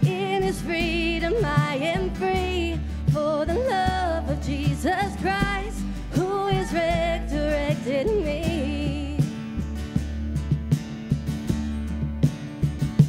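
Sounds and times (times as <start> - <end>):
person singing with vibrato: 0.0 - 9.3
band playing steady beat: 0.0 - 13.0.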